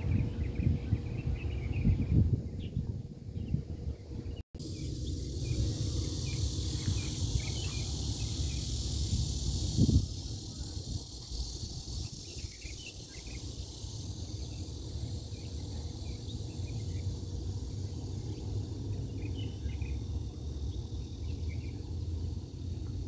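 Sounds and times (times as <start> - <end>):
high insect hiss: 4.6 - 23.0.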